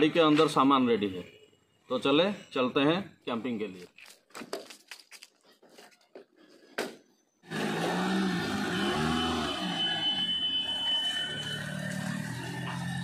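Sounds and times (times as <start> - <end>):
car engine starting and revving: 7.4 - 10.1.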